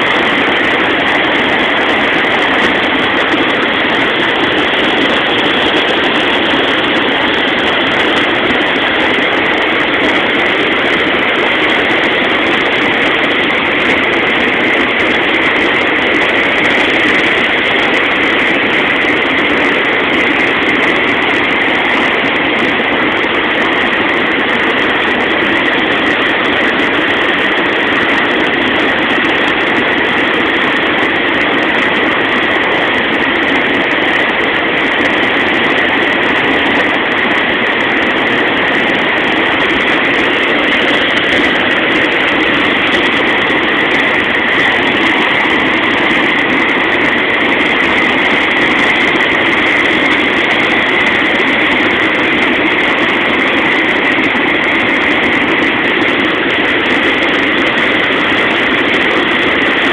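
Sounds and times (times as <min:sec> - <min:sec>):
floodwater rushing in a river: 0:00.0 - 0:59.9.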